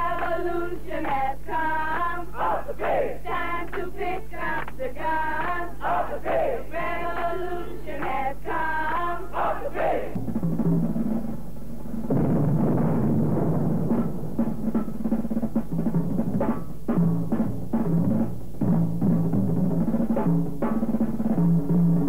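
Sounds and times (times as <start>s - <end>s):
group singing in chorus: 0.0s - 10.2s.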